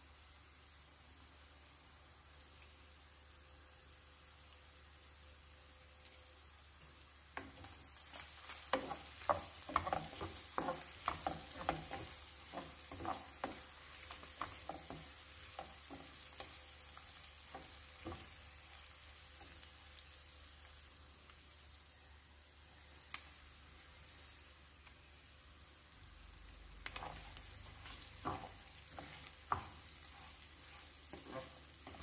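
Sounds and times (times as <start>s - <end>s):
wooden spoon scraping a pan: 7.4s - 18.8s, 26.8s - 32.0s.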